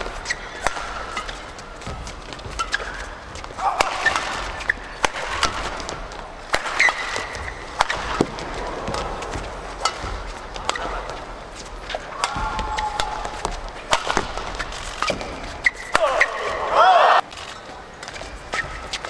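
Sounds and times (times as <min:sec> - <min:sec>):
indoor arena hum: 0:00.0 - 0:19.0
rackets hitting shuttlecock: 0:00.0 - 0:19.0
shoes squeaking on court: 0:00.0 - 0:19.0.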